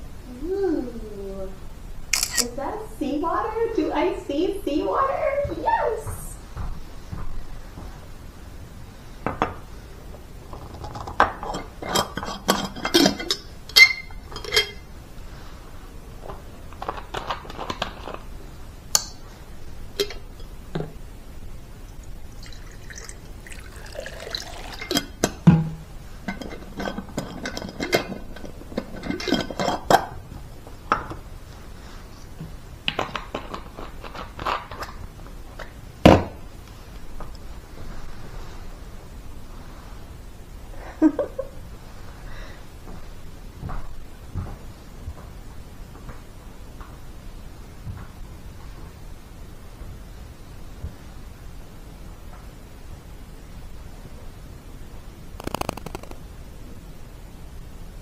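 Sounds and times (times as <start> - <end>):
glass clinks and knocks: 11.5 - 14.8
water pouring into glass jar: 21.9 - 25.2.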